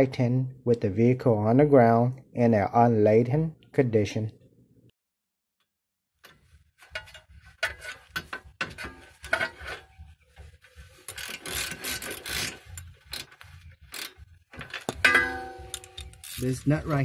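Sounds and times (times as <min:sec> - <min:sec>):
ratchet clicking: 0:11.1 - 0:15.0, 0:15.6 - 0:16.6.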